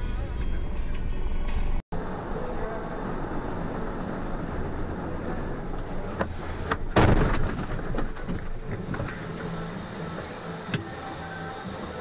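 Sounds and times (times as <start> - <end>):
engine and road noise: 0.0 - 12.0
loud crash of impact: 6.9 - 8.2
debris clattering: 6.9 - 8.7.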